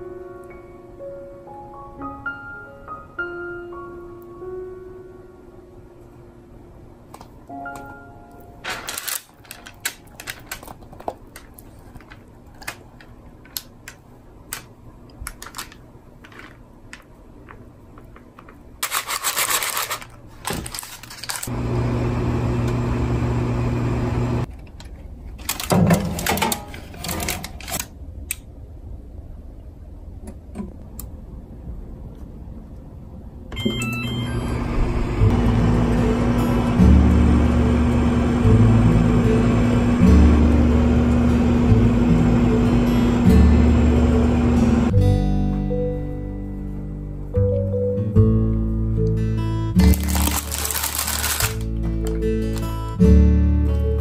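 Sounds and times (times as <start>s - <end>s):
parchment paper crinkling: 8.7s - 21.5s, 24.5s - 27.9s, 49.8s - 51.8s, 52.4s - 52.8s.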